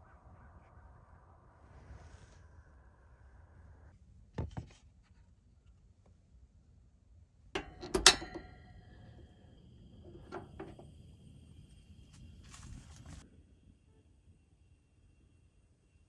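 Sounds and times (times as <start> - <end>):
heater control knob clicks: 7.6 - 9.1
igniter snap: 7.6 - 11.7.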